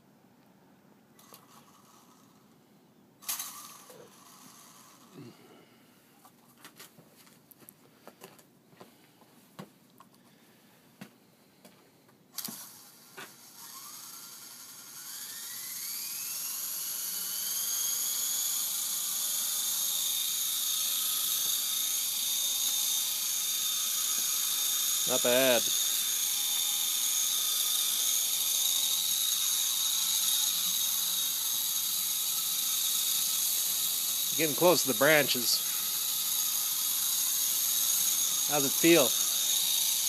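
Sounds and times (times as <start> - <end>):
helicopter motors whining: 1.2 - 2.5, 3.2 - 5.7, 12.4 - 40.0.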